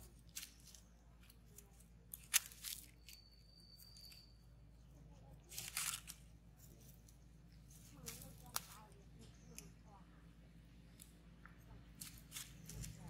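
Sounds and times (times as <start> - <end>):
dry leaves crackling and rustling: 0.0 - 3.2, 5.4 - 9.7, 11.9 - 13.0.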